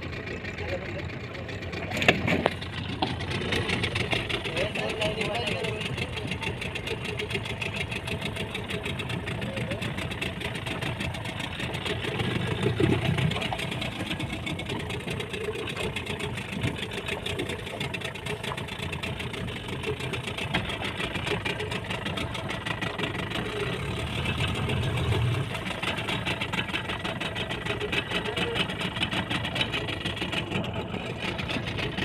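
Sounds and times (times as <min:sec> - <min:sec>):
boat engine idling: 0:00.0 - 0:32.0.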